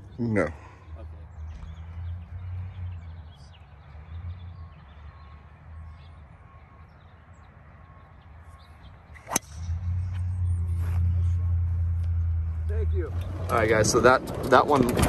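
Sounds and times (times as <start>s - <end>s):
low microphone rumble: 9.4s - 15.0s.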